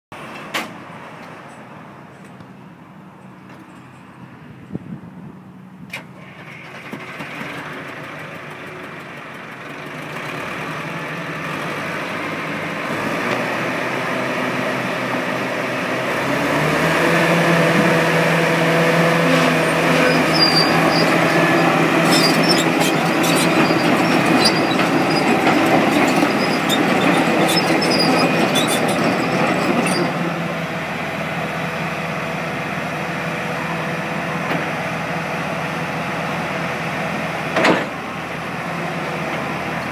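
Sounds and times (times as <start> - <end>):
diesel engine revving: 6.2 - 39.9
steel tracks clanking and squeaking: 19.0 - 30.5.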